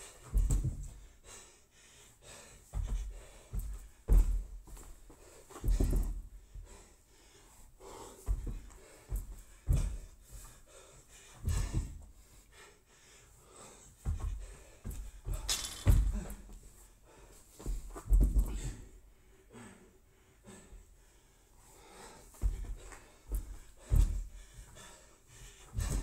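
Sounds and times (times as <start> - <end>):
heavy panting breaths: 0.0 - 26.0
body thumps on rubber floor: 0.3 - 1.0, 2.7 - 4.9, 5.6 - 6.2, 8.3 - 10.1, 14.0 - 16.5, 17.7 - 18.7, 25.7 - 26.0.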